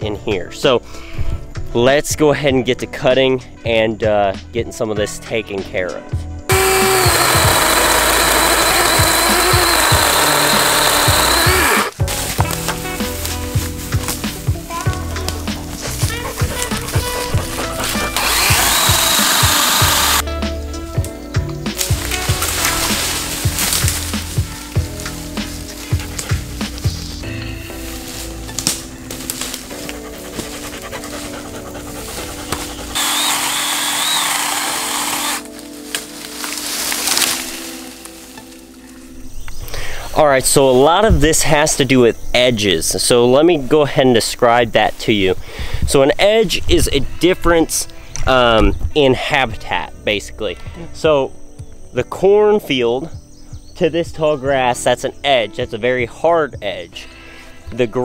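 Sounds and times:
electric chainsaw cutting: 0:06.5 - 0:12.0, 0:16.6 - 0:20.2, 0:21.8 - 0:24.2, 0:32.0 - 0:35.6
background music with steady beat: 0:11.9 - 0:33.0.

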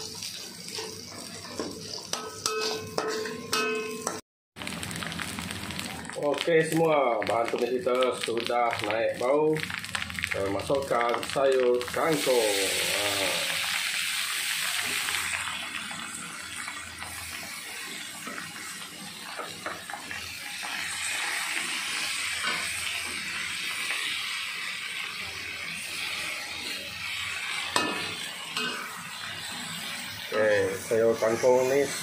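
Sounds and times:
metal ladle scraping a wok: 0:00.0 - 0:04.2
greens sizzling in hot oil: 0:00.0 - 0:32.0.

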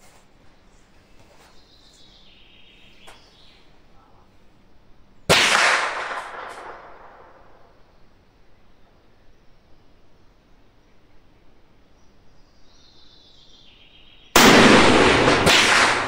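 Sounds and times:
rifle shot echoing: 0:05.3 - 0:07.7, 0:14.4 - 0:16.0.

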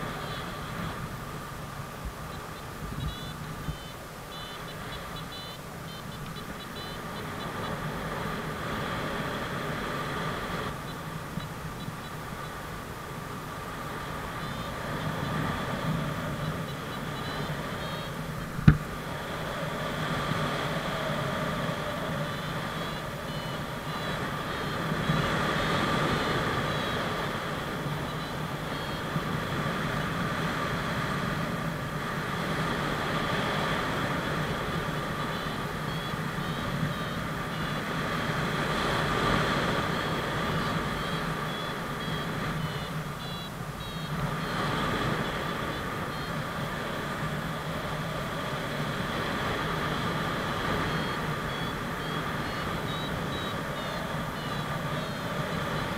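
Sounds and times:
short high beeps: 0:03.0 - 0:07.7, 0:14.3 - 0:18.8, 0:20.6 - 0:24.9, 0:26.0 - 0:27.2, 0:28.1 - 0:29.1, 0:39.9 - 0:46.4, 0:50.7 - 0:55.9.

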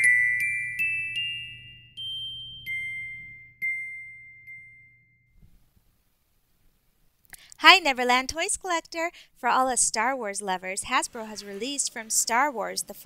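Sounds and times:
bell-like chime notes: 0:00.0 - 0:05.4.

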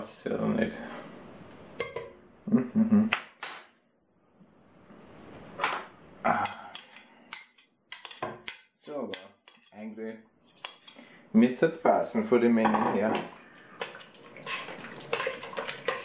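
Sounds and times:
spoon scraping plastic tub: 0:13.2 - 0:16.0.

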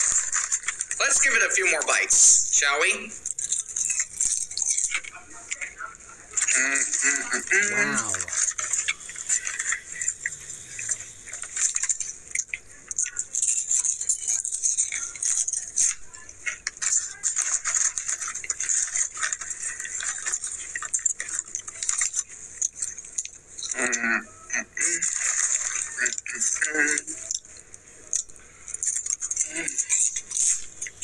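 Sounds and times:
chip bag crinkling: 0:00.0 - 0:02.2, 0:02.8 - 0:23.8.

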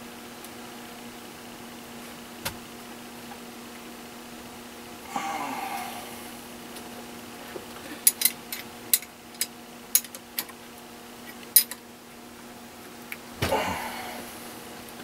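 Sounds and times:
metal hardware clinking: 0:08.0 - 0:10.5, 0:11.5 - 0:11.8.

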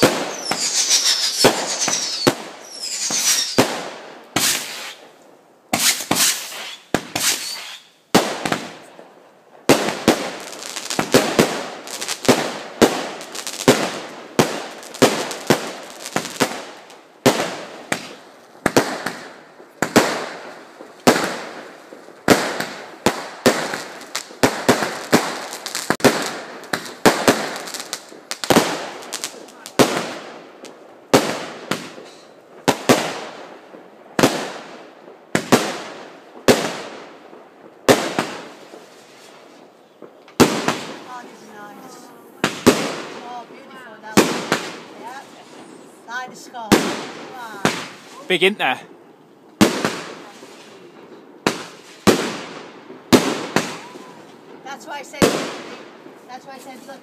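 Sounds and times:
firework whistling: 0:00.0 - 0:05.1, 0:05.7 - 0:08.6, 0:53.1 - 0:54.9
fireworks bangs: 0:00.0 - 0:57.0.

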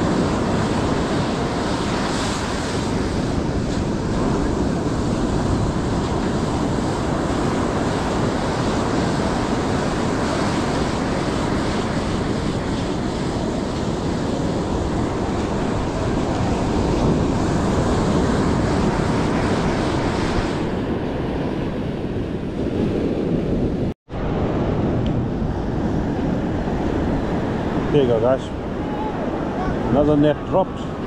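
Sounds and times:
ocean surf breaking: 0:00.0 - 0:31.0
wind buffeting microphone: 0:00.0 - 0:31.0.

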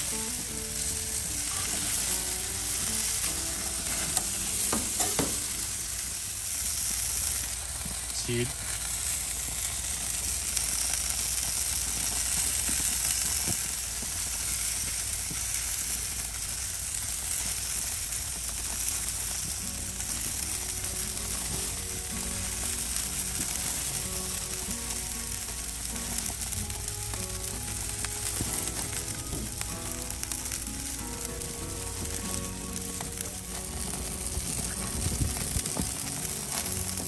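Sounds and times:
faint background music: 0:00.0 - 0:08.8, 0:18.8 - 0:37.0
burger patties sizzling on grill: 0:00.0 - 0:37.0.

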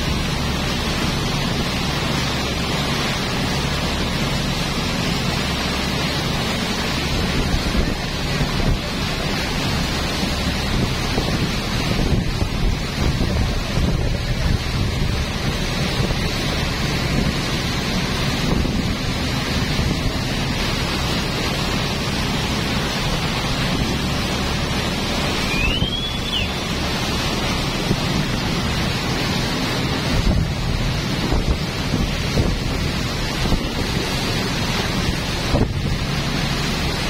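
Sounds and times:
boat engine and water rumble: 0:00.0 - 0:37.0
wind buffeting microphone: 0:07.0 - 0:37.0
high whistling tone: 0:25.4 - 0:26.6.

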